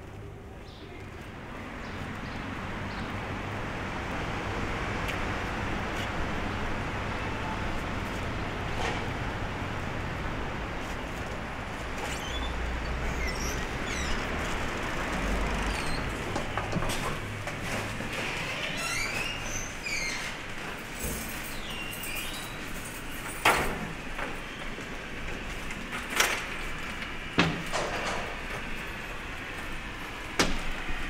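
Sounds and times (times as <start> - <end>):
low engine rumble: 0.0 - 21.6
street traffic noise: 0.0 - 31.0.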